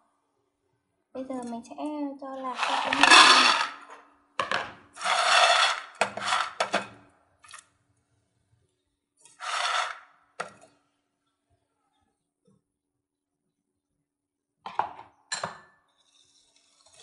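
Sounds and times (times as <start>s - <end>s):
peanuts rattling in a metal bowl: 2.4s - 3.9s, 5.0s - 6.7s, 9.4s - 10.0s.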